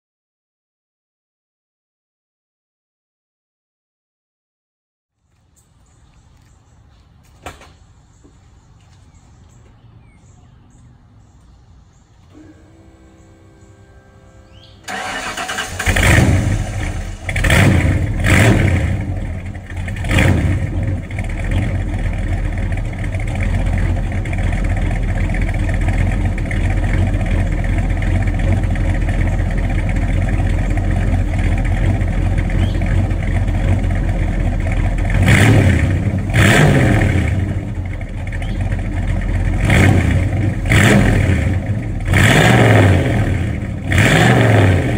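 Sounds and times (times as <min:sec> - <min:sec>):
engine revving and idling: 0:12.3 - 0:44.9.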